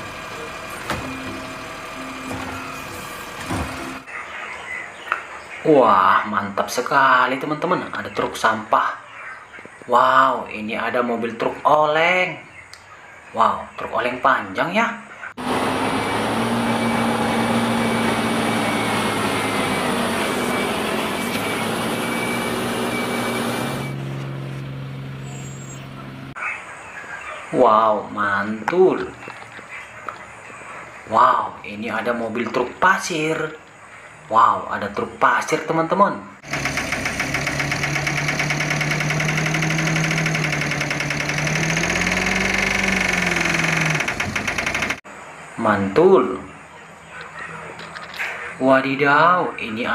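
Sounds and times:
truck diesel engine drone: 0.0 - 4.4, 15.3 - 26.4, 36.4 - 45.2
diesel engine knocking: 36.4 - 45.0.

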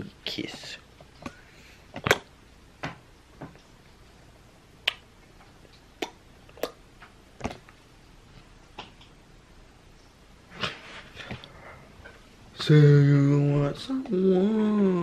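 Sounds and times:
lips kissing smacks: 4.8 - 5.0.

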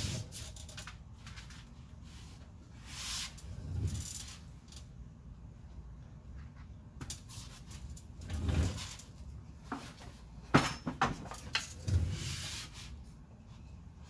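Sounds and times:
tools clunking and knocking: 9.6 - 11.8.

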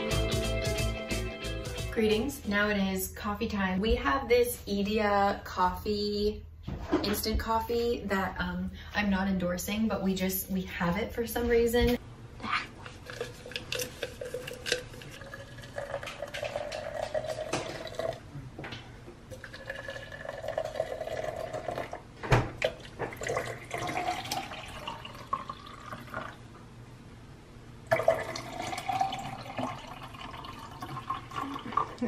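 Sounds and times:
hot water pouring into glasses: 13.5 - 18.3, 19.3 - 22.0, 22.6 - 26.4, 27.9 - 32.0.

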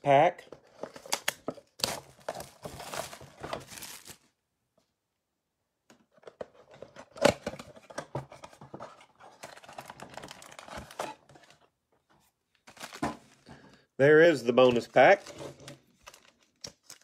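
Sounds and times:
foil packs rustling and crinkling: 1.0 - 4.3, 12.6 - 13.6.

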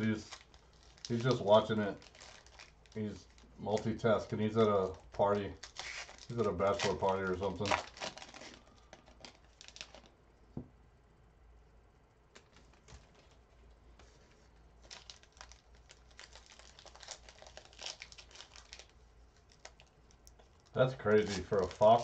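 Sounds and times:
packaging crinkling and clicking: 0.0 - 4.0, 4.8 - 10.1, 14.8 - 22.0.

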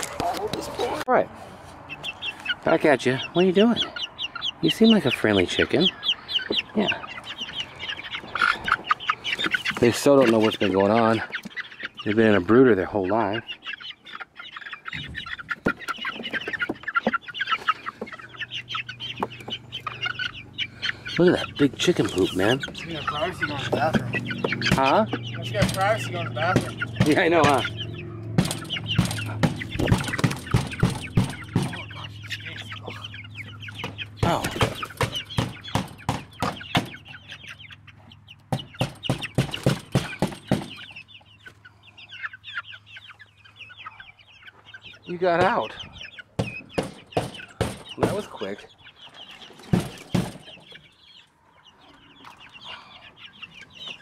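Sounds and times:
chicks peeping and clucking: 0.0 - 54.0
sharp knocks: 23.8 - 25.9, 26.5 - 27.7, 28.3 - 31.9, 33.8 - 37.0, 38.5 - 40.8, 46.4 - 48.3, 49.7 - 50.5.

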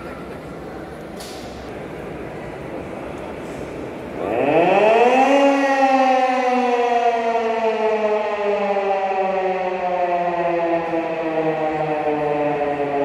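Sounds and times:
siren winding down: 4.2 - 13.0.

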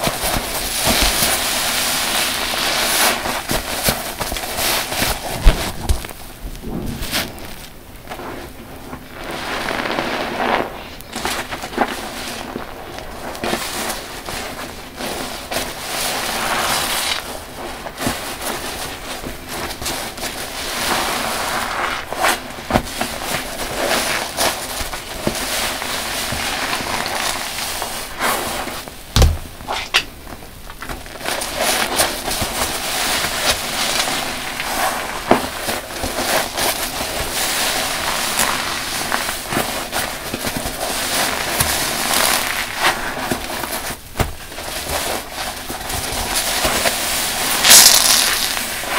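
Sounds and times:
popping soap suds crackle: 0.0 - 48.9
dull thump: 29.1 - 29.7
sponges squelching: 30.8 - 48.9.

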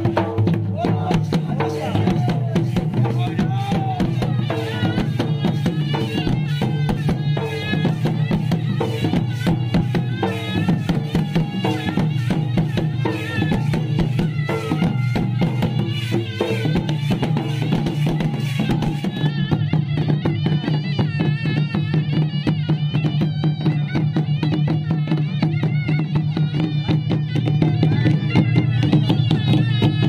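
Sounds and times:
fast dense drumming: 0.0 - 19.2.

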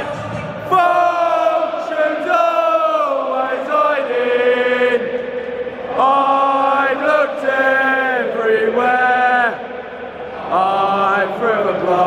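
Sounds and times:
stadium crowd singing: 0.0 - 12.0.

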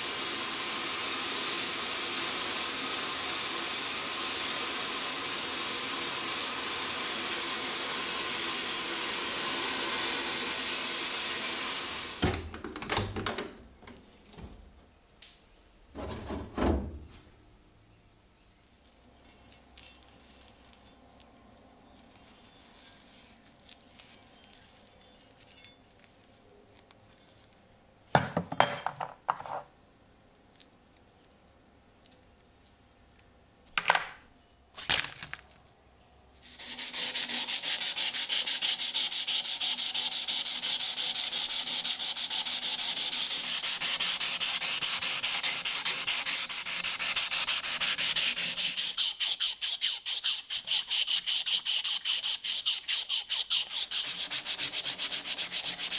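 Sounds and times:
sandpaper rubbing on metal: 22.2 - 26.4, 36.4 - 55.9.

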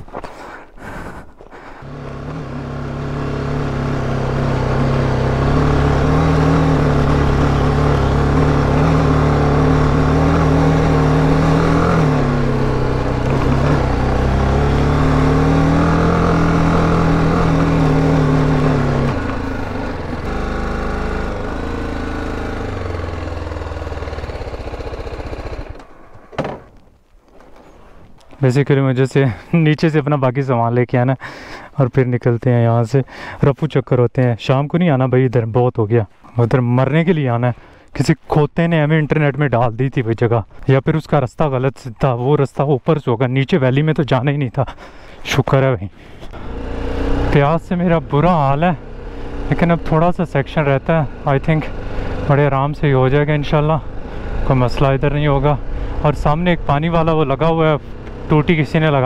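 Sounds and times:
motorcycle engine pulling under load: 1.8 - 26.8, 46.3 - 59.0.

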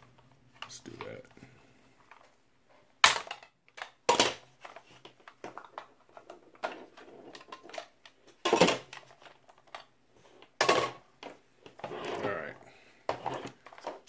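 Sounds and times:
plastic cover clicking and snapping: 3.0 - 11.3.

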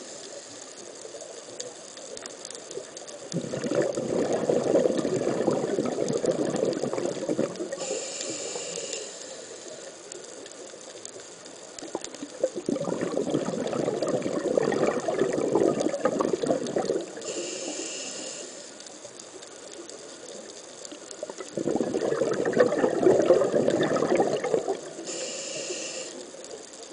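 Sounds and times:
bubbling underwater exhalations: 3.3 - 7.9, 11.9 - 17.2, 21.2 - 25.1
regulator hissing inhalation: 7.5 - 10.1, 17.1 - 18.9, 25.0 - 26.4.

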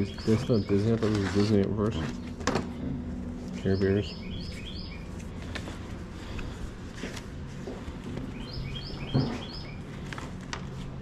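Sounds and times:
paper sleeves handled: 0.0 - 2.5, 3.2 - 9.0, 9.8 - 11.0
songbird singing: 0.0 - 5.2, 8.2 - 9.9.

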